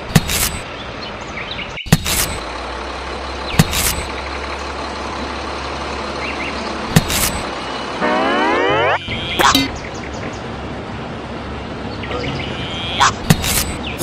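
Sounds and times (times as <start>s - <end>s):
excavator engine rumble: 0.0s - 14.0s.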